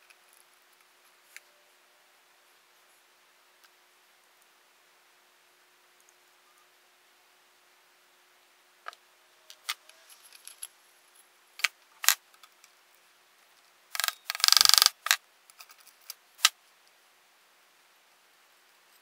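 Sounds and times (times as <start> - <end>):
rattling run of clicks: 13.9 - 15.2.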